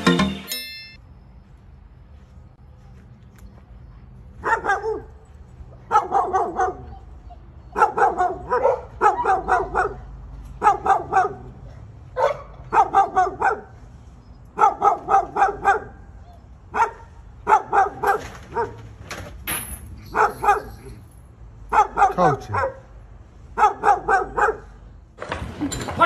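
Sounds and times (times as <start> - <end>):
dog barking: 4.4 - 5.2, 5.8 - 13.8, 14.6 - 16.1, 16.7 - 18.8, 20.1 - 20.9, 21.7 - 22.9, 23.6 - 24.8.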